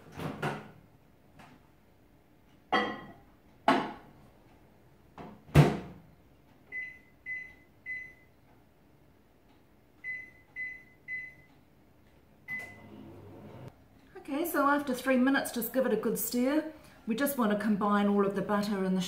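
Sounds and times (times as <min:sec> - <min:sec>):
keypad beeps: 0:06.7 - 0:08.3, 0:10.0 - 0:11.5.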